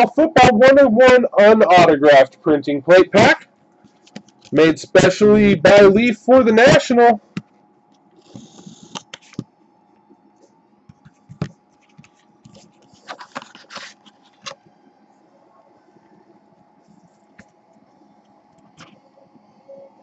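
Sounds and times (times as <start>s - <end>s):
handling of card: 3.8s - 4.6s, 10.9s - 14.6s.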